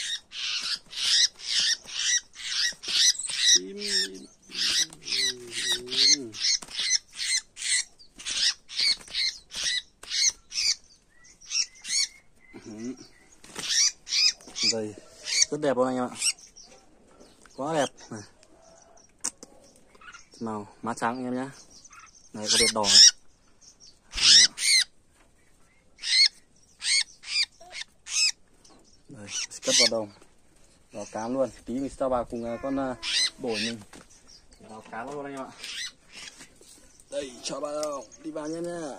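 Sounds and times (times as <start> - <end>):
bird giving harsh scolding squawks: 0.0 - 10.8, 13.5 - 16.4, 21.9 - 23.2, 24.1 - 24.9, 26.0 - 28.4, 29.2 - 30.0, 32.4 - 33.8, 35.6 - 36.4.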